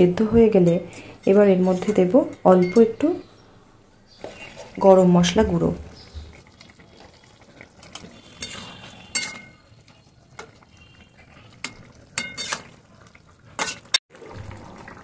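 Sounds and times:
wet stirring of curry: 5.9s - 14.9s
spatula clinking against pan: 8.4s - 9.6s, 11.6s - 12.7s.

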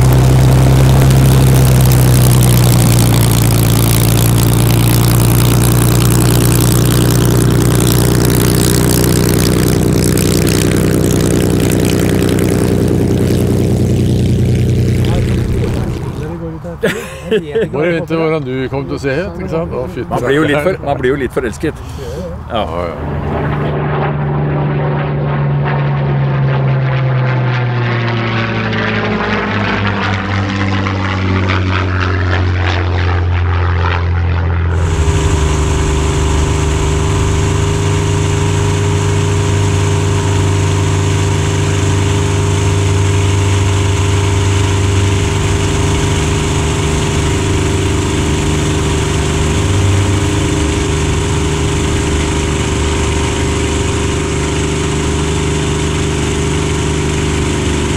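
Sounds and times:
propeller plane droning in flight: 0.0s - 21.0s, 21.6s - 57.9s
propeller plane passing: 0.0s - 57.9s.

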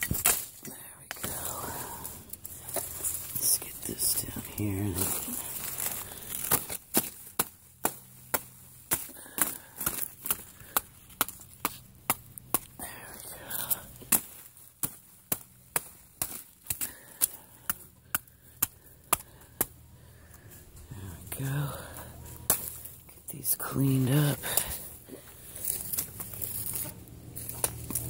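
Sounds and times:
big leaves rustling: 0.0s - 17.6s, 19.4s - 28.0s
sharp chopping strikes: 6.4s - 12.8s, 14.0s - 19.8s.

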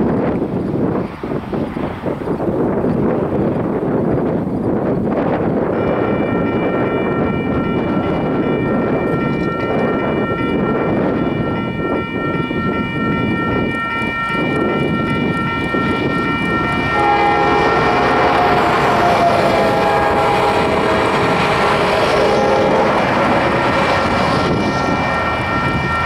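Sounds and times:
wind rumble on microphone: 0.0s - 26.0s
crossing warning bell ringing: 5.6s - 26.0s
locomotive horn: 5.7s - 26.0s.

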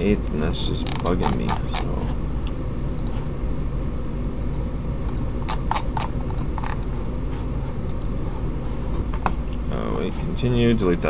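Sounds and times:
low microphone hum: 0.0s - 11.0s
computer mouse clicks: 7.9s - 8.2s.

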